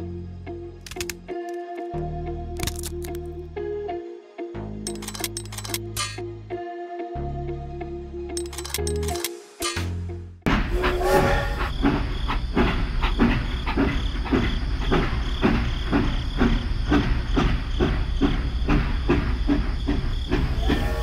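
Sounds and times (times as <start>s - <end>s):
toy train electronic chugging: 4.9s - 6.2s, 8.4s - 9.8s, 11.0s - 21.0s
toy train toot: 10.8s - 11.8s, 20.5s - 21.0s.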